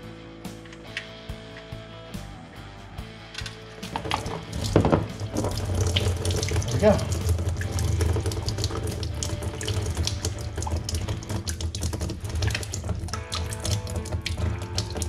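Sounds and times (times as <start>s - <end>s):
oil pouring and splashing: 3.4s - 15.0s.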